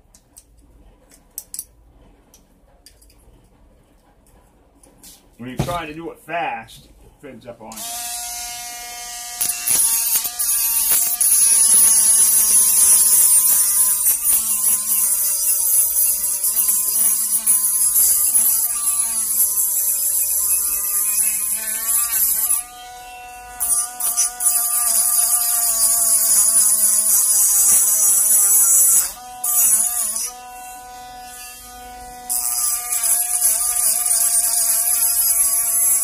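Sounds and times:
rotary tool grinding metal: 7.8s - 36.0s.

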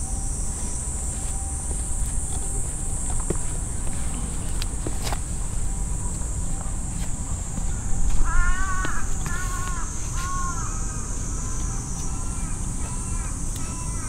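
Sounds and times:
crow cawing: 8.0s - 14.0s.

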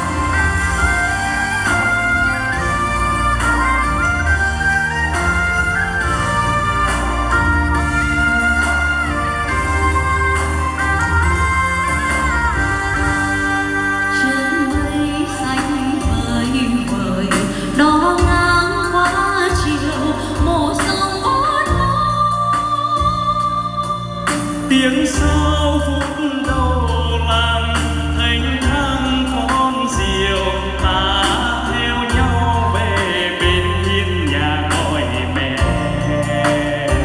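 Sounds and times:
instrumental backing music: 0.0s - 37.0s
person singing into microphone: 12.9s - 37.0s.

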